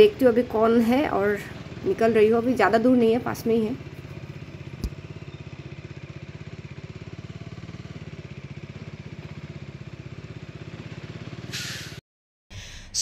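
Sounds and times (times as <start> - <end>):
motorcycle engine running: 0.0 - 11.5
short knock: 4.8 - 5.0.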